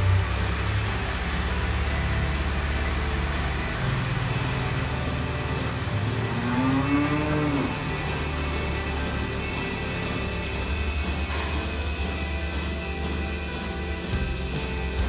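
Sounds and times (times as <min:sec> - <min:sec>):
milking machinery hum: 0:00.0 - 0:15.0
cow mooing: 0:05.4 - 0:10.3.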